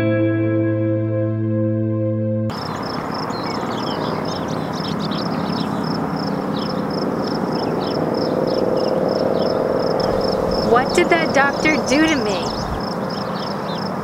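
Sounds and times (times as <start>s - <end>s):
bird calls falling in pitch: 2.5s - 13.9s
insect chirping steadily: 2.5s - 14.0s.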